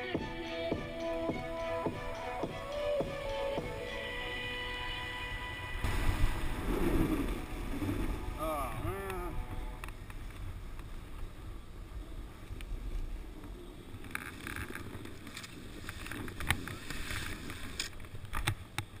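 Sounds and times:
snowboard sliding on snow: 0:03.6 - 0:09.8, 0:14.6 - 0:17.9
wind rushing over microphone: 0:04.8 - 0:14.1
board scraping and knocking on snow: 0:14.0 - 0:18.8.

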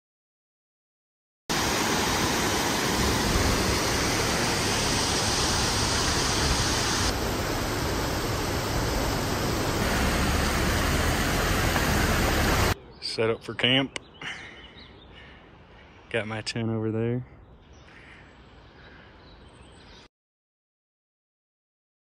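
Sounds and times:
stream rushing over rocks: 0:01.5 - 0:12.8.

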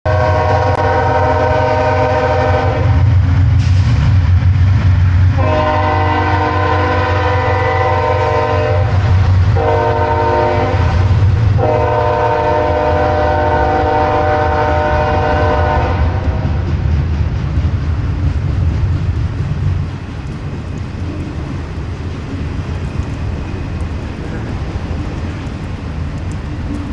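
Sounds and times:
locomotive air horn blasts: 0:00.1 - 0:03.0, 0:05.4 - 0:16.4
train cars rumbling past: 0:00.1 - 0:26.9.

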